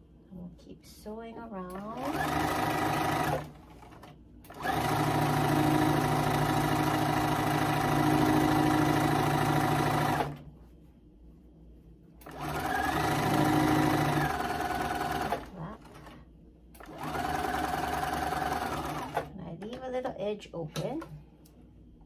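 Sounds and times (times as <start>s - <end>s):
sewing machine stitching: 1.7s - 10.4s, 12.2s - 16.2s, 16.8s - 19.3s.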